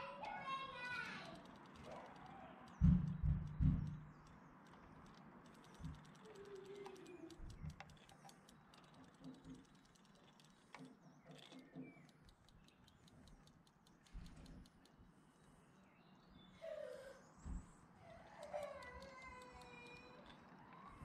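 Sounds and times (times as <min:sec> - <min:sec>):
toy mechanism ticking: 0:00.0 - 0:15.6, 0:18.4 - 0:21.0
soft low thumps: 0:02.8 - 0:04.2.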